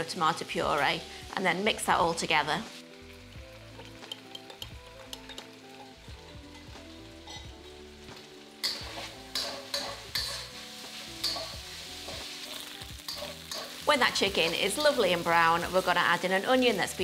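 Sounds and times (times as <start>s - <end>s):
chicken sizzling in oil: 0.0s - 17.0s
soft background music: 0.0s - 17.0s
metal spatula scraping wok: 6.5s - 7.5s, 8.6s - 16.8s.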